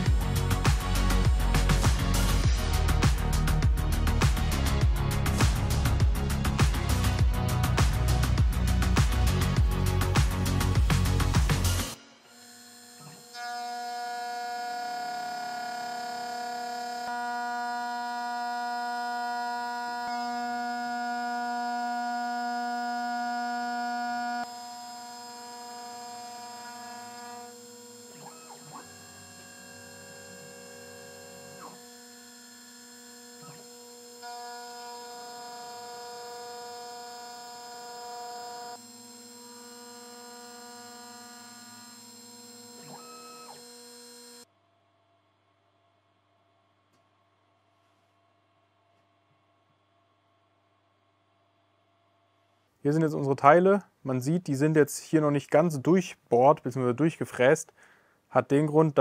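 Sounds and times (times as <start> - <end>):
milling machine motors whining: 9.3 - 44.4.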